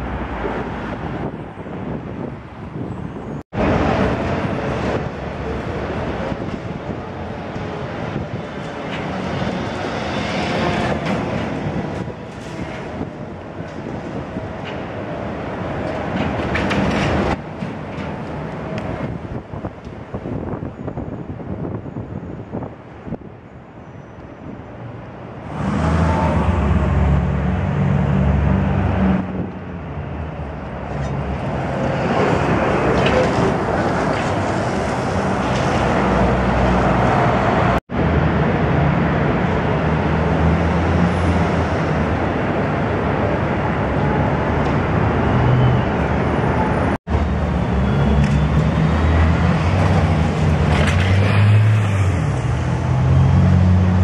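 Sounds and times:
street traffic roar: 0:00.0 - 0:54.0.

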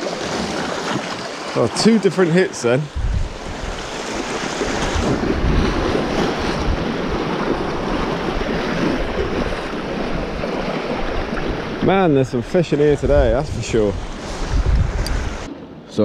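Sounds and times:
surf washing against rocks: 0:00.0 - 0:15.5
wind gusting over microphone: 0:02.8 - 0:15.5.

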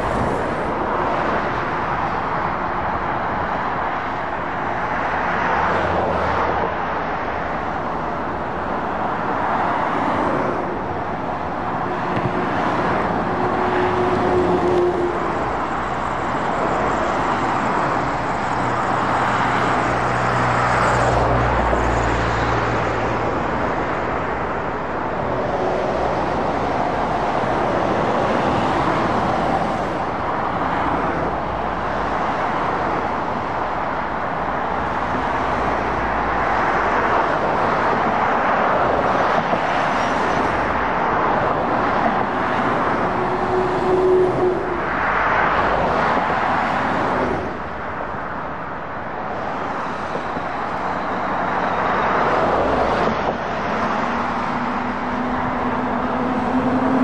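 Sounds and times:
vehicles passing on road: 0:00.0 - 0:57.0
low diesel engine drone: 0:40.3 - 0:57.0.

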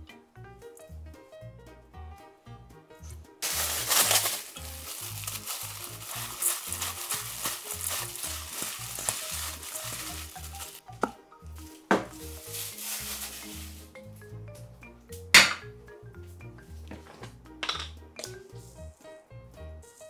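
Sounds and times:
gloved hand tossing food in bowl: 0:03.4 - 0:10.8, 0:12.1 - 0:13.9.

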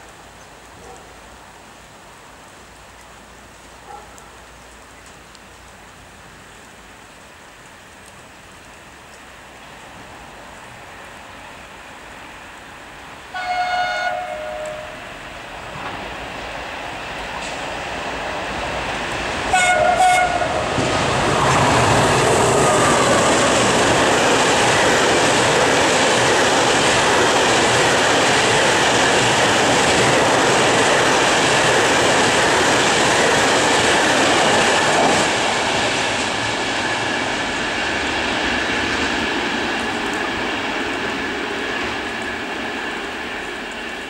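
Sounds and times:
train horn blasts: 0:13.3 - 0:15.1, 0:19.5 - 0:20.7
rush of wagons passing: 0:15.0 - 0:44.0.

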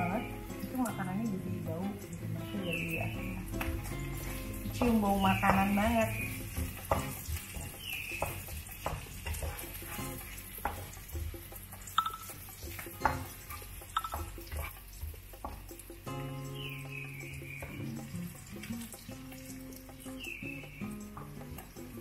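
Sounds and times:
light sizzling: 0:00.0 - 0:22.0
spatula scraping frying pan: 0:03.9 - 0:15.6.

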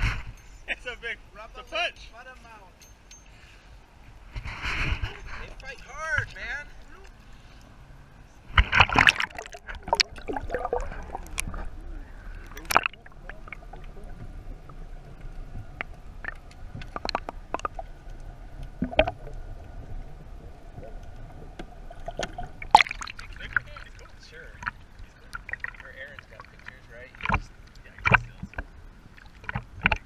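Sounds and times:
faint underwater hum: 0:00.0 - 0:30.0
water splashing: 0:04.2 - 0:30.0
underwater clicks and pops: 0:08.6 - 0:11.7, 0:12.4 - 0:14.0, 0:15.7 - 0:19.4, 0:21.6 - 0:23.7, 0:26.6 - 0:30.0.

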